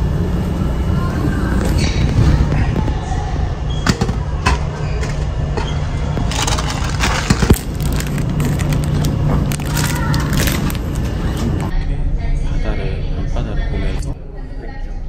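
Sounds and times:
low engine drone: 0.0s - 14.1s
plastic wrapper crinkling: 6.2s - 11.7s.

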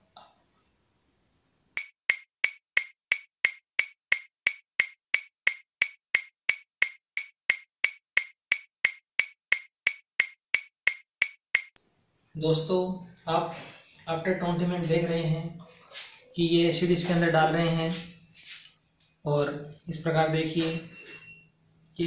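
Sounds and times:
stopwatch ticking: 1.8s - 11.8s.

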